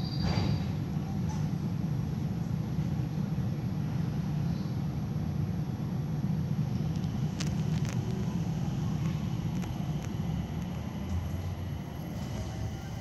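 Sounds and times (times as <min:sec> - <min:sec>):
train tyres rumbling on guideway: 0:06.3 - 0:13.0.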